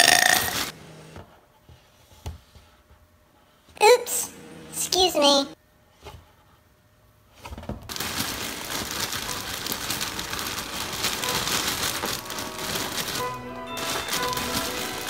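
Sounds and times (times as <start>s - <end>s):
dry cereal crackling in a box: 7.9s - 15.0s.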